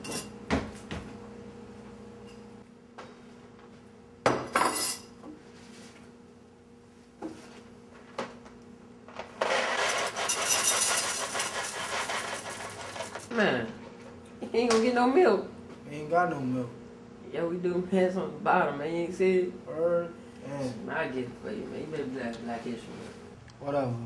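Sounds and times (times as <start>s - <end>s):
cereal pouring into a bowl: 9.4s - 13.3s.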